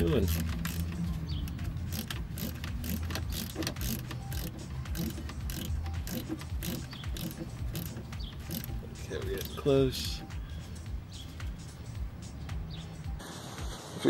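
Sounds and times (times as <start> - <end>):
ratchet wrench clicking: 0.0 - 8.8.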